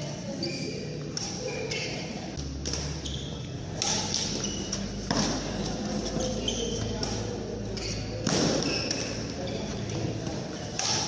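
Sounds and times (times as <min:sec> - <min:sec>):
rackets hitting shuttlecock: 0:01.1 - 0:11.0.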